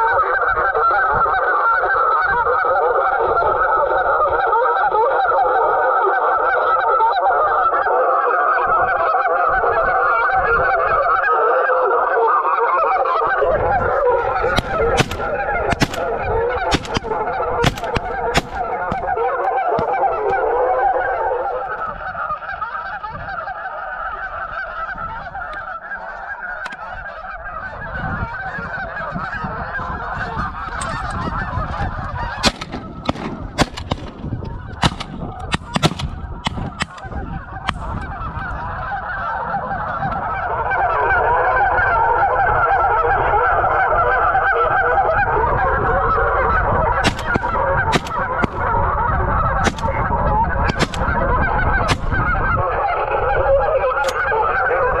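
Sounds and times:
geese honking: 0:00.0 - 0:55.0
sharp clicks: 0:14.5 - 0:19.2, 0:34.8 - 0:37.1.

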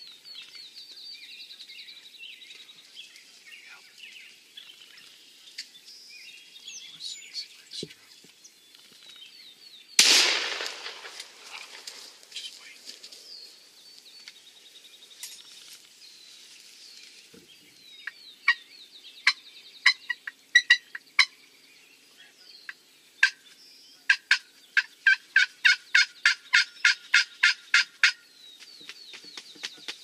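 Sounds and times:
faint songbird twittering: 0:00.0 - 0:10.0, 0:11.4 - 0:27.4
wild turkey calling: 0:18.0 - 0:21.4, 0:22.7 - 0:28.2.

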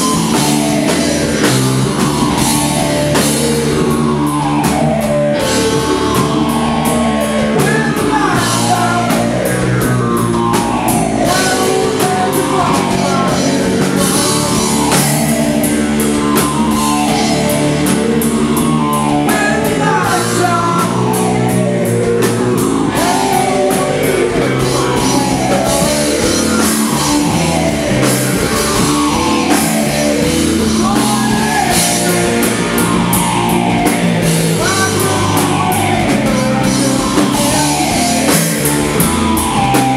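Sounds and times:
bass guitar: 0:00.0 - 0:39.9
distorted electric guitars: 0:00.0 - 0:39.9
drum kit: 0:00.0 - 0:39.9
man singing into microphone: 0:07.6 - 0:09.7, 0:11.2 - 0:15.2, 0:19.3 - 0:21.3, 0:22.9 - 0:25.8, 0:30.8 - 0:32.6, 0:34.6 - 0:38.3.

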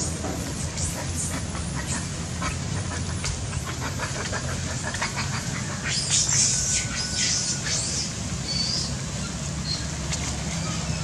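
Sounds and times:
high-pitched squeaky calls: 0:05.2 - 0:11.0.

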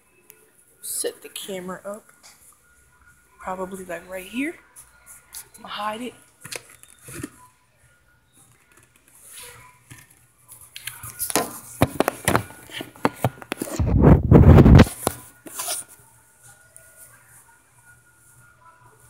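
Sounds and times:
phone handling noise: 0:10.8 - 0:15.8
phone rubbing against fabric: 0:12.6 - 0:15.9.

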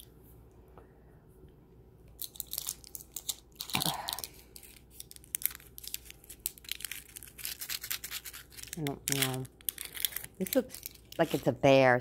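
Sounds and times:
plastic wrapper crinkling and tearing: 0:02.1 - 0:11.6.

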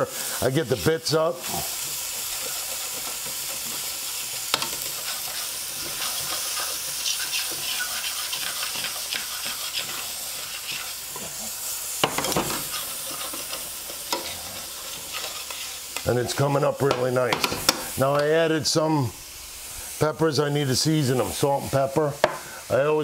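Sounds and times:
food sizzling in a pan: 0:00.0 - 0:23.0
utensil scraping pan: 0:02.2 - 0:16.4.

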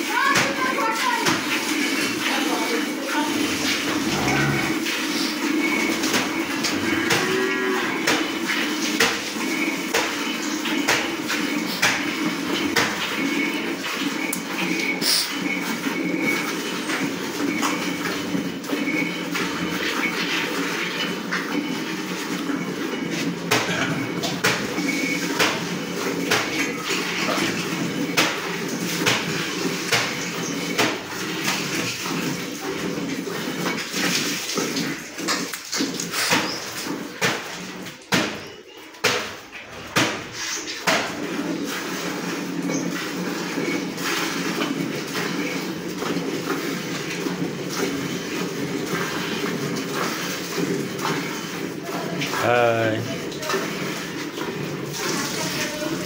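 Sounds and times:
cow mooing: 0:03.3 - 0:05.1, 0:06.4 - 0:08.1
milk squirting into metal pail: 0:39.4 - 0:52.4, 0:53.1 - 0:56.0.

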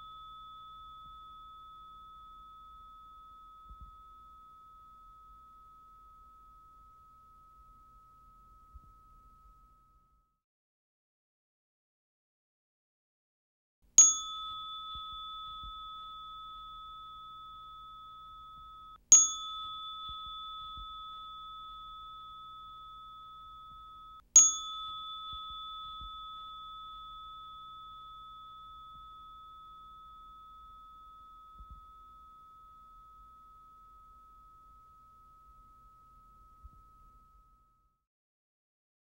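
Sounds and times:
metal chime bar ringing: 0:00.0 - 0:04.4, 0:14.0 - 0:37.4.

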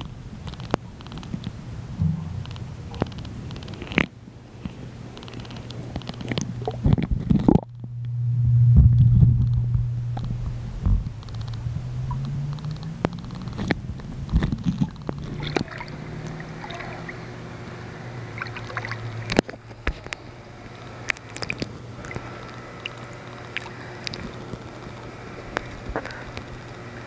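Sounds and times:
sharp clicks and knocks: 0:00.0 - 0:07.9, 0:09.4 - 0:15.7
steady low hum: 0:00.0 - 0:27.0
muffled underwater noise: 0:08.9 - 0:27.0.

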